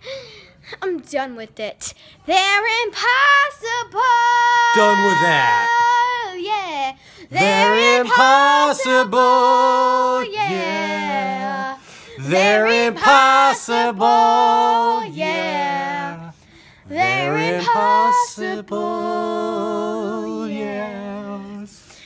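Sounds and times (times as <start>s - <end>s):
girl singing unaccompanied: 2.2s - 16.1s, 16.9s - 19.4s
man singing unaccompanied: 4.7s - 5.7s, 7.3s - 11.6s, 12.2s - 16.3s, 16.9s - 21.7s.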